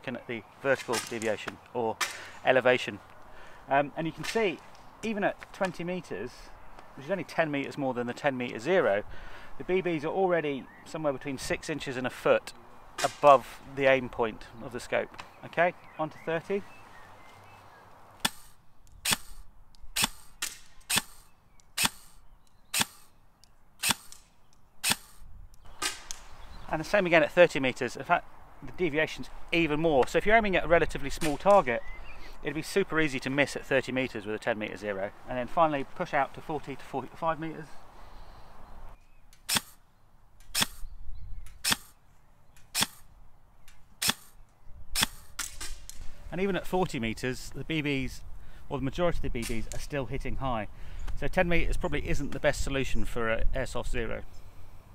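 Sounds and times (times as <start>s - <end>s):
airsoft rifle shots: 18.2s - 19.4s, 20.0s - 23.1s, 23.8s - 25.2s, 25.8s - 26.3s, 39.4s - 39.8s, 40.5s - 40.8s, 41.6s - 42.0s, 42.7s - 43.1s, 44.0s - 44.4s, 45.0s - 45.9s.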